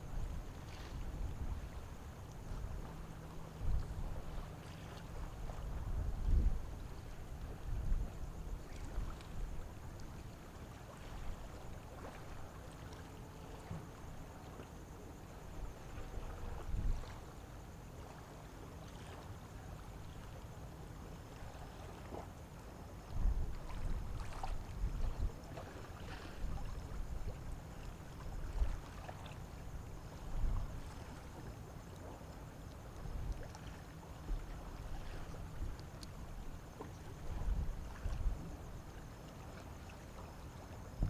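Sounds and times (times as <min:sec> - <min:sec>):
faint steady hum: 0:00.0 - 0:41.0.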